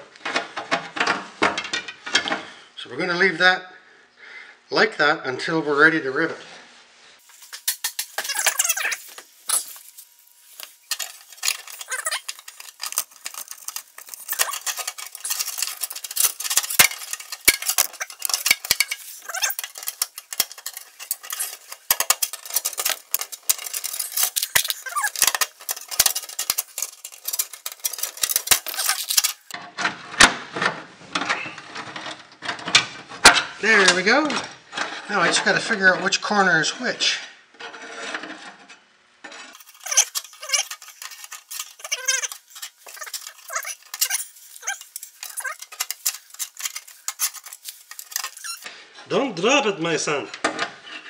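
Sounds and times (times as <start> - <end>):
small metal parts clicking and rattling: 7.2 - 29.6, 39.4 - 48.7.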